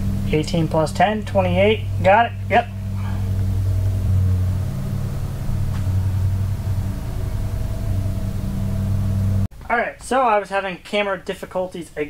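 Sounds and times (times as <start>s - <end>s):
faint steady tones: 0.0s - 9.5s
low machine hum: 0.0s - 9.5s.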